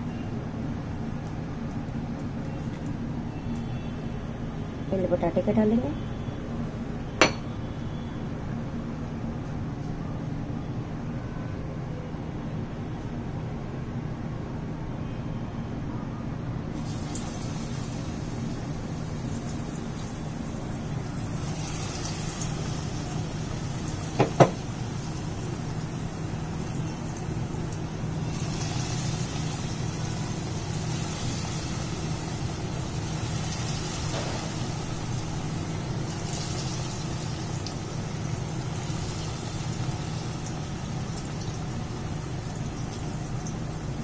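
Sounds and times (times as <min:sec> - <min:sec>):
potato slices sizzling in oil: 0:16.8 - 0:44.0.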